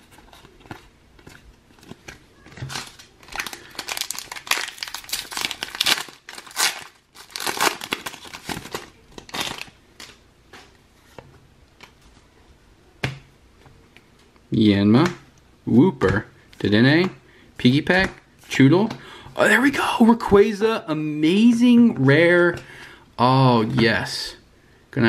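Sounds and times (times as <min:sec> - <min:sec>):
foil wrapper crinkling: 0:01.9 - 0:10.2.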